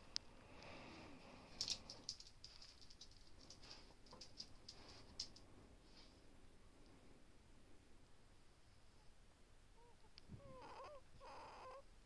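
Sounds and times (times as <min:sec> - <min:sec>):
person breathing faintly: 0:00.1 - 0:02.3
short high squeaks and crackles: 0:10.4 - 0:11.8.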